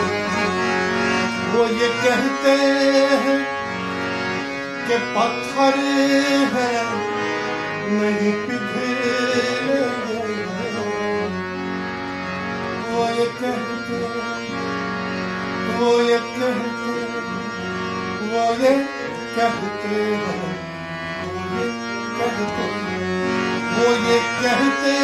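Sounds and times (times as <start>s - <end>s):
harmonium playing: 0.0s - 25.0s.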